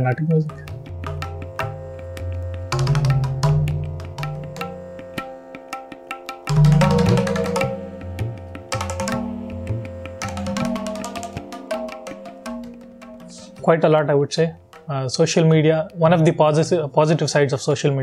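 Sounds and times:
hand drum quick strokes: 6.5s - 13.7s
steady held drone: 6.6s - 14.6s.

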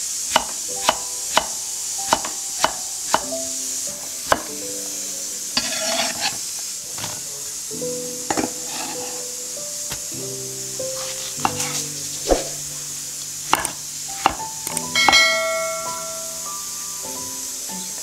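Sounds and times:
soft piano music: 0.6s - 6.8s, 7.5s - 18.0s
knife knocking on chopping board: 13.5s - 14.4s.

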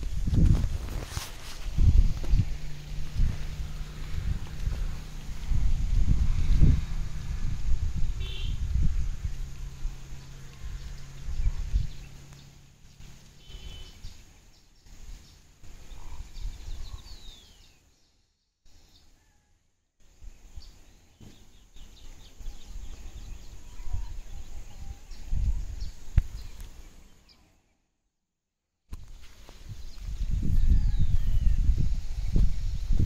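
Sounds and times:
low rumbling noise: 0.0s - 16.8s
faint bird chirps: 10.2s - 19.6s, 20.3s - 27.9s.

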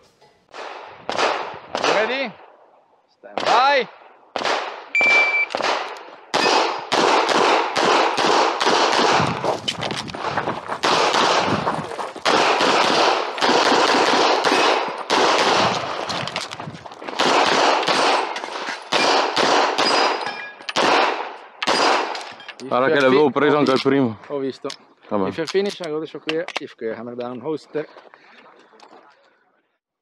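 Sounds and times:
handgun shots: 4.4s - 9.4s, 10.8s - 11.5s, 12.2s - 16.4s, 17.1s - 22.4s
shot timer beep: 4.9s - 5.6s.

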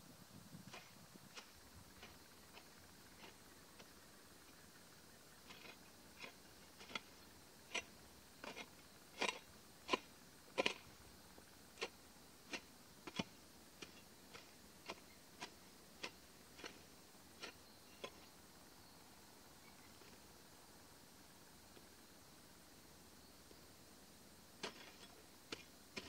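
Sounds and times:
metal hoe chopping into soil: 0.7s - 4.6s, 5.4s - 11.0s, 11.8s - 18.3s, 24.6s - 26.0s.

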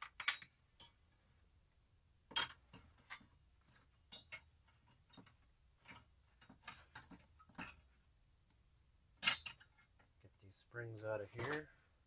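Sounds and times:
small metal hardware clicking: 0.0s - 1.0s.

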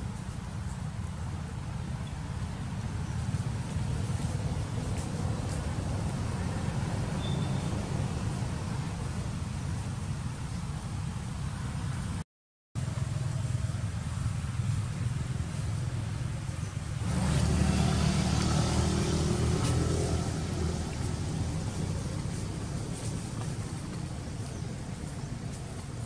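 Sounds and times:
low outdoor background rumble: 12.8s - 26.0s.

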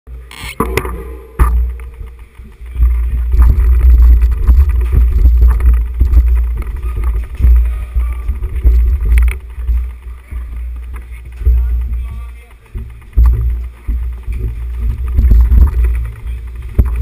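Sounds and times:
bikes knocking and clattering: 0.1s - 17.0s
low rumble in tunnel: 0.6s - 17.0s
splashing footsteps: 0.6s - 17.0s.

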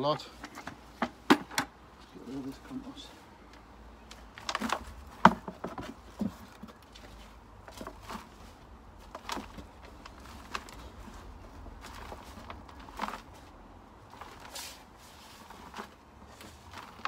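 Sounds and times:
hands scraping through compost: 4.3s - 17.0s.

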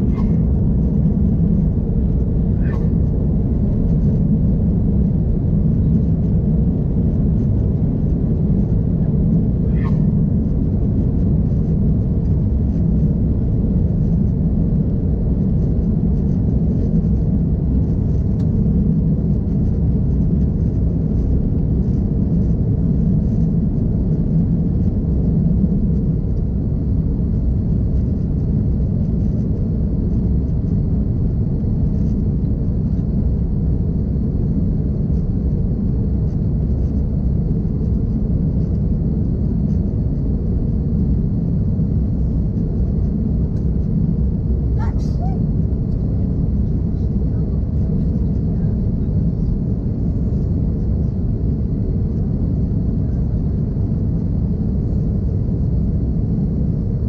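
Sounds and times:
airplane engines rumbling in cabin: 0.0s - 57.0s.

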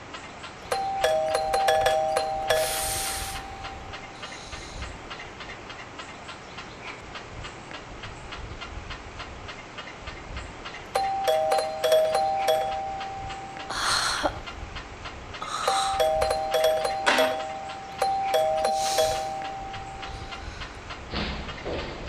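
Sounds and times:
electronic two-note chime: 0.7s - 4.2s, 11.0s - 13.9s, 15.7s - 20.4s
short bursts of hiss: 2.5s - 3.5s.

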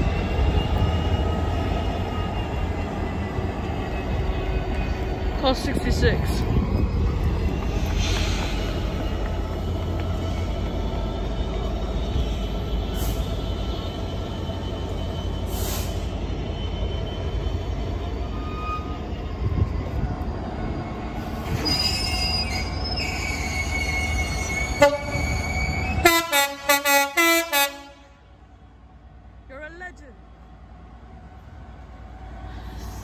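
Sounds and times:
freight train wagons rumbling: 0.0s - 33.0s
wheel squeals: 11.5s - 19.6s, 20.8s - 26.1s.

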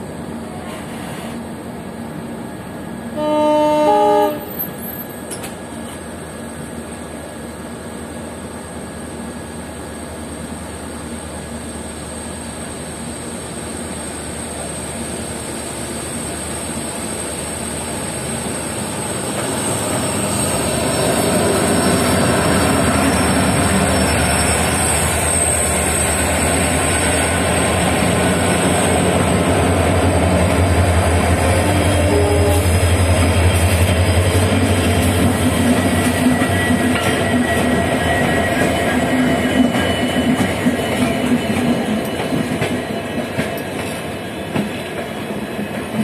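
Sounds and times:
diesel locomotive engine drone: 0.0s - 46.0s.

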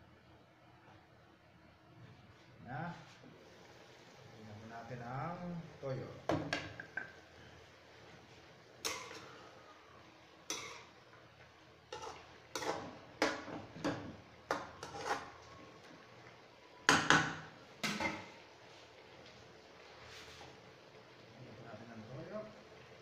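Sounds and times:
metal spoon scraping a wok: 10.5s - 11.0s, 11.9s - 15.4s.

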